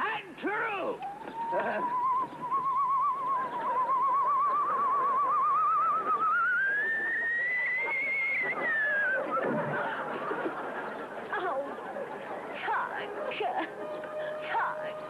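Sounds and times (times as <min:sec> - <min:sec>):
comic arrow whistle: 0:01.4 - 0:09.5.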